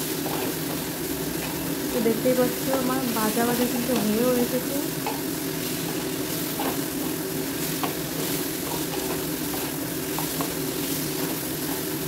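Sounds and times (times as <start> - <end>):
food sizzling in oil: 0.0 - 12.0
wooden spatula scraping pan: 5.7 - 11.9.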